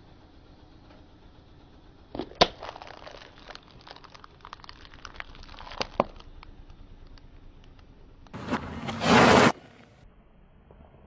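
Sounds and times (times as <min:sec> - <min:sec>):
plastic ball cracking under tyre: 0:02.1 - 0:07.9.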